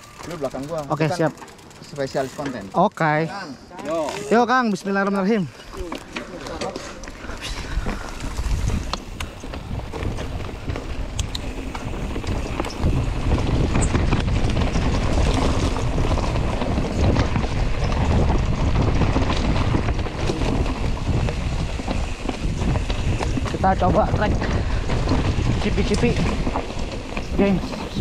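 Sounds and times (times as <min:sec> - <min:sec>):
bike tyres rumbling on rocks: 0:00.0 - 0:02.8, 0:03.9 - 0:28.0
bike clicks and knocks: 0:00.0 - 0:02.9, 0:03.8 - 0:28.0
wind buffeting the microphone: 0:06.8 - 0:28.0.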